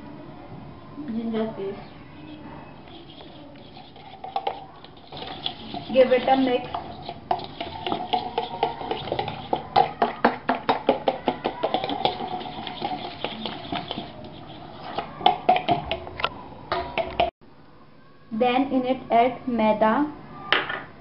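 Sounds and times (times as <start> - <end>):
utensil stirring and clinking: 2.2 - 17.3.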